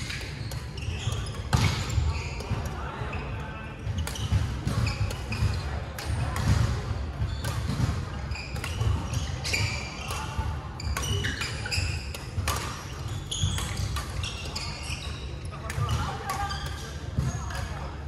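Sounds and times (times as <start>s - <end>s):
sneakers squeaking on floor: 0.0s - 17.9s
racket hitting shuttlecock: 3.9s - 15.0s.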